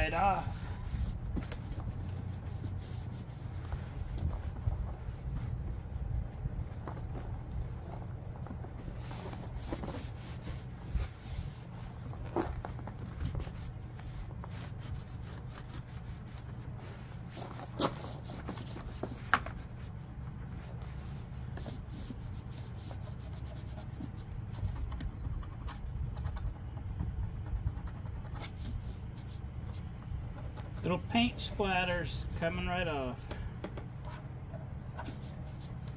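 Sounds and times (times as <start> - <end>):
towel rubbing on plastic housing: 0.0 - 26.8.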